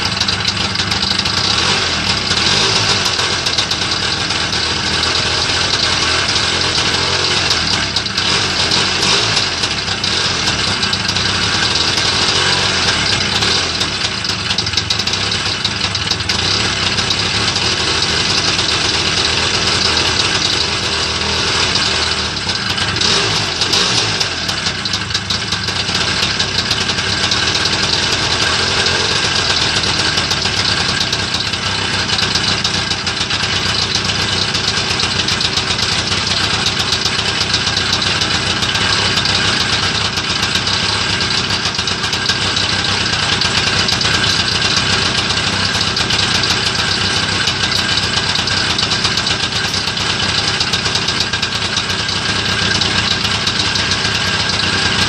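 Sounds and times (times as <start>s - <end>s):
two-stroke scooter engine idling: 0.0s - 55.0s.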